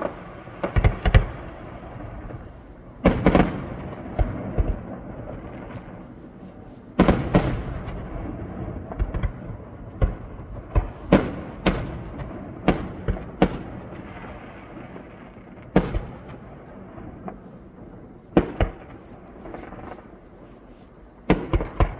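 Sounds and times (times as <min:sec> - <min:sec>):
firework booms: 0:00.0 - 0:06.1, 0:07.0 - 0:20.3, 0:21.0 - 0:21.9
firework shells bursting: 0:00.0 - 0:08.0.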